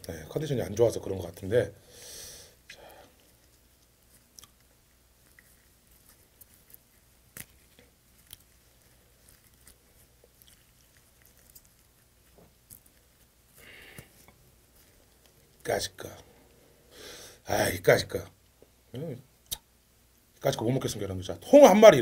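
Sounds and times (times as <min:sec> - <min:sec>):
soft hiss: 0:00.0 - 0:22.0
soft clicks and squishes of eating: 0:02.6 - 0:15.7.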